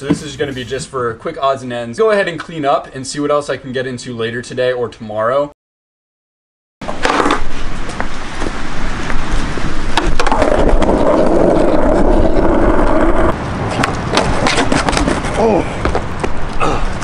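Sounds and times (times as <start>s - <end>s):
skateboard wheels rolling on asphalt: 6.8s - 16.6s
skateboard clacking on ground: 12.8s - 16.4s.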